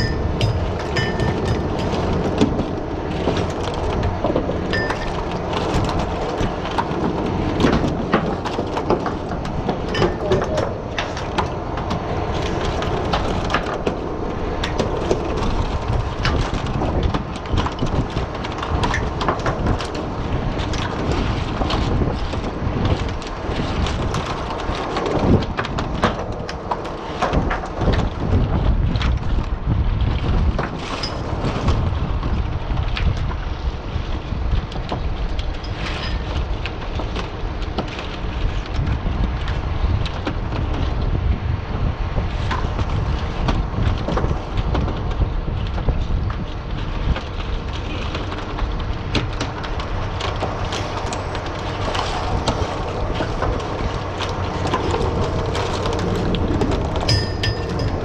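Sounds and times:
oyster shells clinking and knocking: 0:00.0 - 0:02.1, 0:57.1 - 0:58.0
boat engine rumble: 0:00.0 - 0:58.0
wind on microphone: 0:00.0 - 0:58.0.

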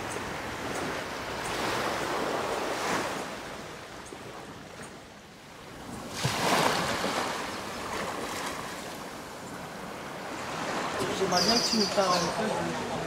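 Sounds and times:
waves breaking on rocks: 0:05.9 - 0:13.0.

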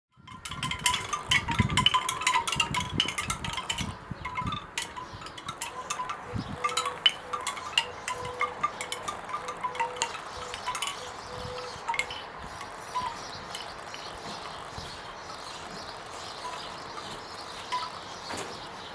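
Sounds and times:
bamboo wind chime knocking: 0:00.3 - 0:14.5.

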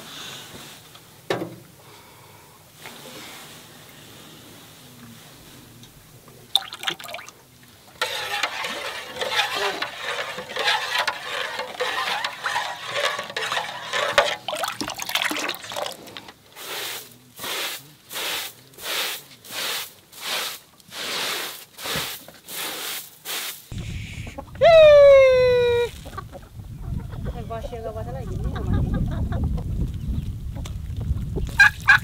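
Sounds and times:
straw broom sweeping a rug: 0:02.8 - 0:05.6, 0:08.0 - 0:14.2, 0:16.6 - 0:23.7
water pouring and sloshing: 0:06.5 - 0:16.4
spoon stirring in metal pot: 0:07.9 - 0:16.0.

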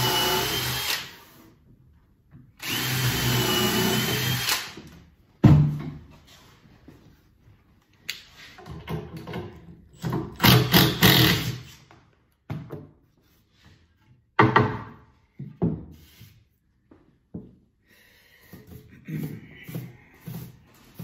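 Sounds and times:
knocks and rattles on workbench: 0:05.4 - 0:06.1, 0:08.6 - 0:11.1, 0:12.4 - 0:13.0, 0:14.3 - 0:16.0.

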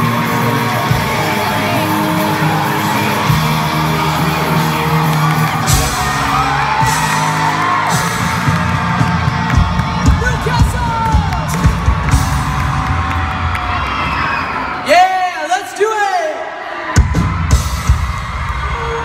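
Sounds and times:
live pop band playing: 0:00.0 - 0:14.1
crowd screaming and whooping: 0:00.0 - 0:15.3, 0:16.4 - 0:19.0
drum hits: 0:05.6 - 0:13.4.

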